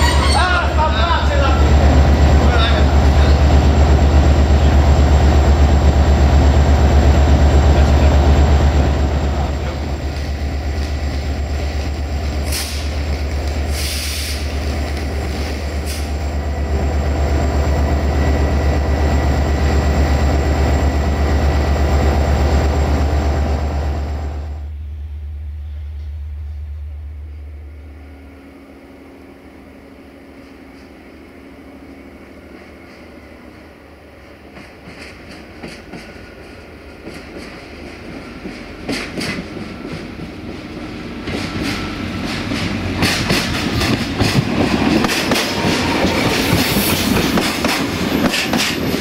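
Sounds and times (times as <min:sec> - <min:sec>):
diesel locomotive engine drone: 0:00.0 - 0:49.0
air hiss: 0:12.4 - 0:13.0, 0:13.7 - 0:14.6.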